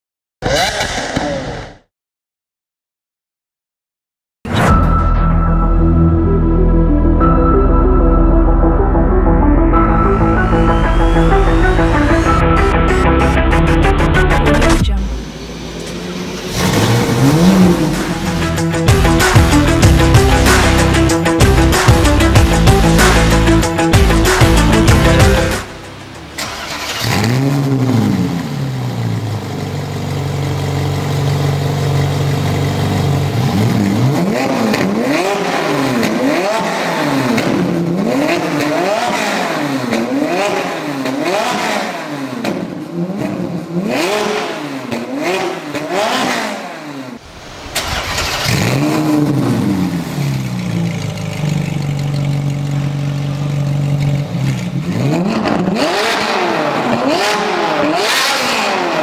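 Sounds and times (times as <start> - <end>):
sports car engine revving: 11.6 - 59.0
car engine idling: 11.9 - 33.6, 47.6 - 54.9.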